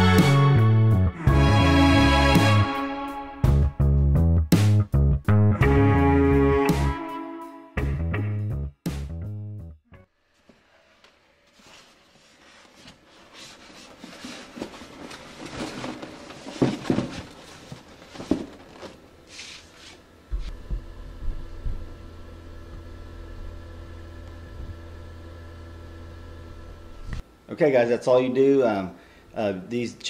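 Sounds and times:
electric fan hum: 12.6 - 30.0.

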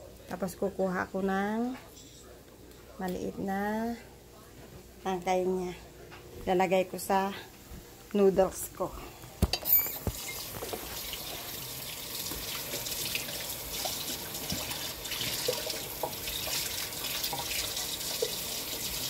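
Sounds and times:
faucet running into sink: 9.9 - 19.0.

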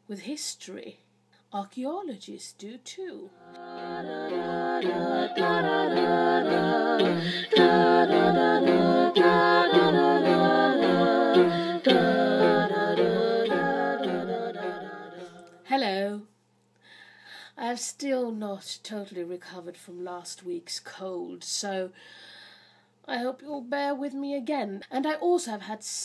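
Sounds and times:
a cappella singing in harmony: 3.4 - 15.6.

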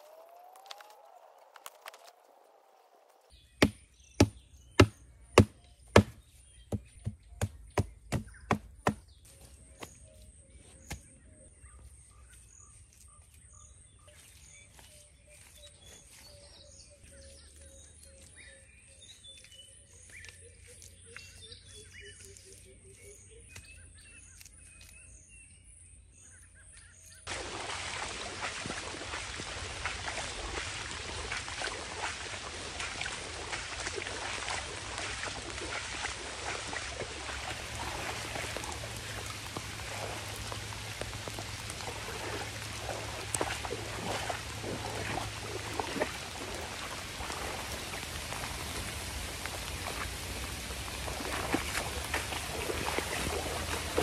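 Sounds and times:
birds chirping faintly: 0.0 - 27.3
heavy rain splashing on water: 27.3 - 54.0.

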